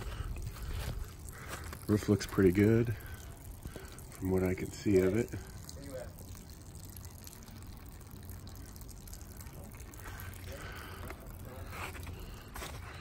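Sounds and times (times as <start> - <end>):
footsteps on wet ground: 0.0 - 4.5, 9.9 - 13.0
water trickling and dripping: 0.0 - 13.0.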